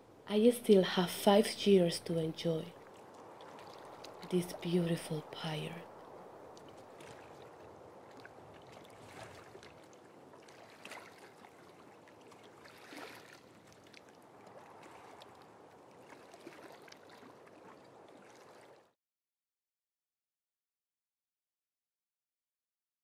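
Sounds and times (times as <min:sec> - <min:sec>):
river water lapping: 0:00.0 - 0:19.0
soft splashes: 0:02.7 - 0:19.0.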